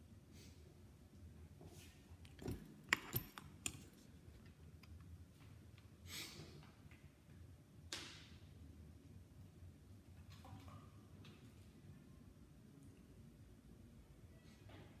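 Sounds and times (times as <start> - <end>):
handling clicks and knocks: 2.3 - 3.9.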